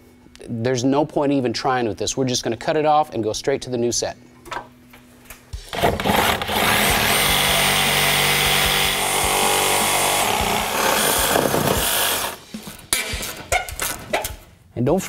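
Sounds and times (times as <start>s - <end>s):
power tool cutting bolt: 5.7s - 12.4s.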